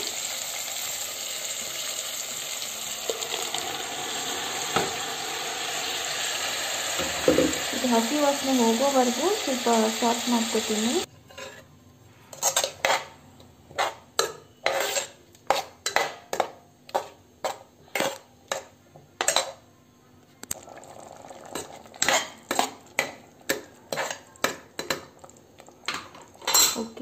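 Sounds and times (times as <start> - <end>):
metal spoon scraping a pot: 11.1 - 16.4, 21.5 - 23.1, 23.9 - 24.3.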